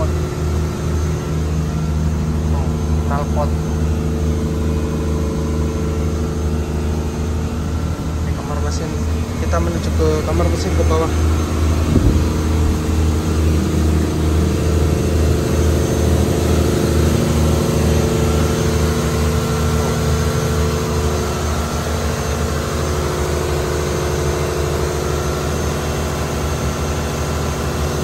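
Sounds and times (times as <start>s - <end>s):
engine room machinery drone: 0.0s - 28.0s.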